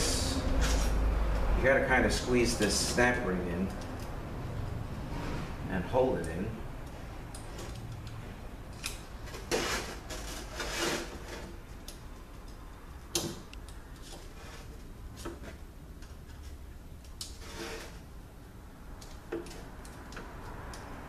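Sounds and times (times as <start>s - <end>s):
metal scraping: 0.0s - 1.1s, 9.3s - 11.6s, 17.2s - 18.1s.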